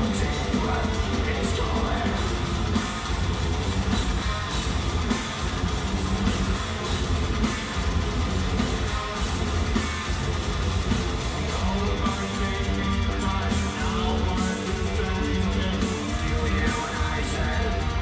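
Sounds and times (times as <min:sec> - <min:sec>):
distorted electric guitars: 0:00.0 - 0:18.0
drums: 0:00.0 - 0:18.0.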